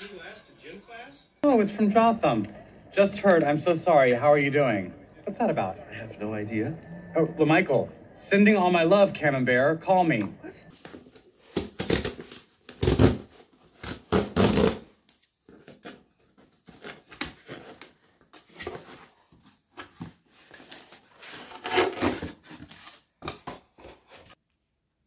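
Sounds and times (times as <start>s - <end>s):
cardboard rustling and scraping: 10.8s - 24.4s.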